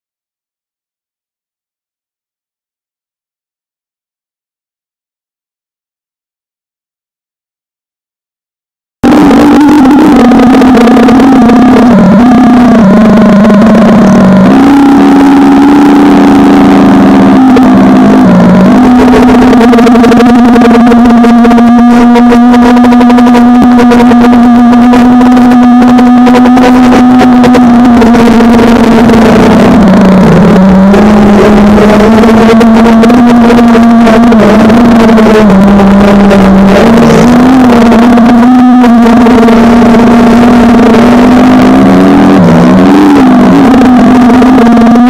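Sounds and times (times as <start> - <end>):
quadcopter motors whining: 9.0 - 45.0.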